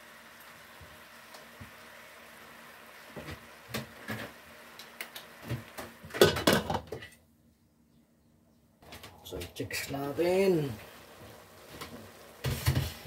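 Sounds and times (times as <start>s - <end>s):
meat and vegetables sizzling in pot: 0.0s - 7.0s, 9.6s - 13.0s
kitchen utensils knocking and clinking: 6.2s - 7.1s.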